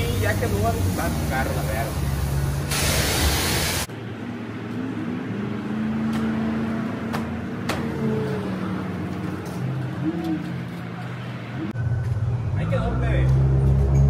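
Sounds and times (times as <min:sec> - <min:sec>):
pressure washer spraying water: 0:00.0 - 0:03.9.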